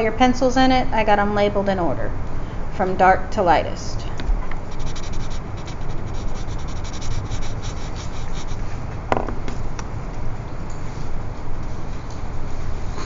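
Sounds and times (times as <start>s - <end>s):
pencil shading on paper: 4.7s - 8.6s.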